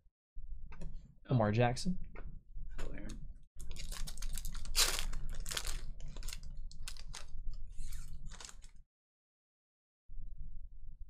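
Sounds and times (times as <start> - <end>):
foil wrapper crinkling: 3.6 - 8.8.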